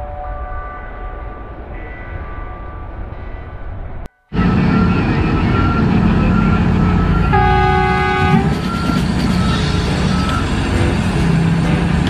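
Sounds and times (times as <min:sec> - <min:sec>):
diesel machinery drone: 0:04.3 - 0:12.0
horn sounding: 0:04.3 - 0:12.0.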